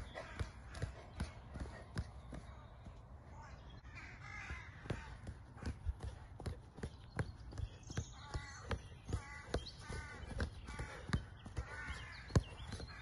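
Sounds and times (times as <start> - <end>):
light thuds of ball on grass: 0.0 - 3.2
bird calling: 0.0 - 13.0.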